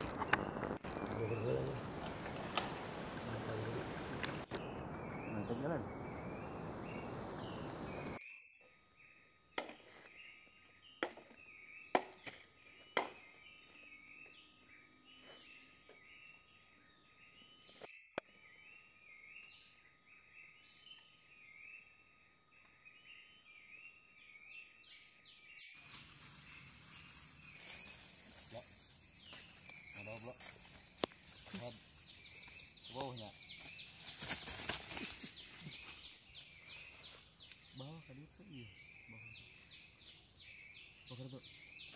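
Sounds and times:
steady hiss: 0:00.0 - 0:08.2, 0:25.8 - 0:28.9
insects chirping: 0:00.0 - 0:25.0, 0:25.6 - 0:41.9.

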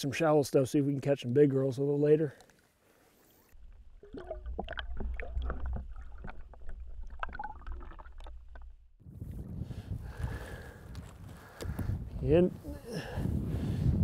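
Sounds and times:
underwater clicks and gurgles: 0:03.5 - 0:09.0.

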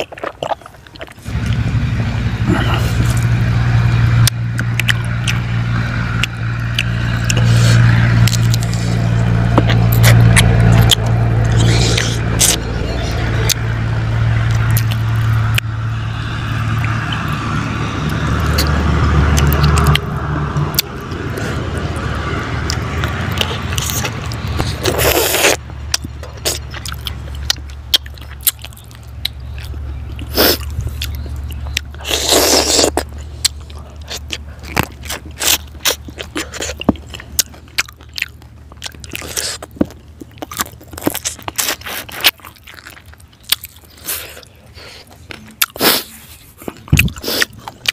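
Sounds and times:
sucking slurps: 0:00.0 - 0:01.6, 0:02.4 - 0:03.5, 0:04.2 - 0:13.7, 0:22.6 - 0:25.6, 0:26.2 - 0:37.7, 0:38.9 - 0:47.9
crunching bone: 0:00.0 - 0:01.7, 0:02.4 - 0:47.9
steady low hum: 0:00.8 - 0:47.9
wet mouth clicks and smacks: 0:04.2 - 0:05.4, 0:06.1 - 0:08.8, 0:19.4 - 0:20.1, 0:22.6 - 0:45.8.

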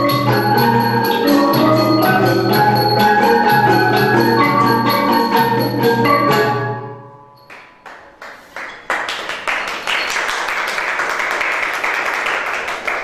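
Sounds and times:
xylophones and gongs playing: 0:00.0 - 0:07.8
applause: 0:07.5 - 0:13.0.

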